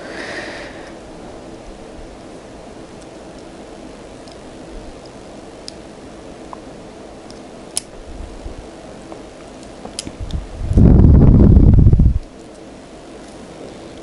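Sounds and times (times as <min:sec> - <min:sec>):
low hum: 0:00.0 - 0:12.6.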